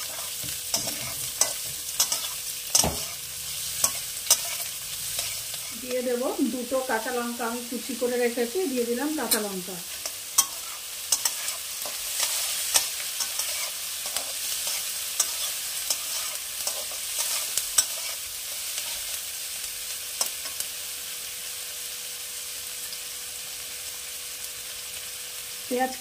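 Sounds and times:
spatula scraping and clicking on pan: 0.0s - 5.8s, 9.2s - 19.1s
vegetables sizzling in hot oil: 0.0s - 26.0s.

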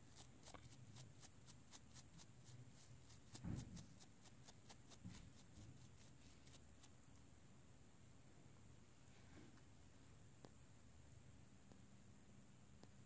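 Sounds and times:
small brush scrubbing: 0.0s - 7.0s.

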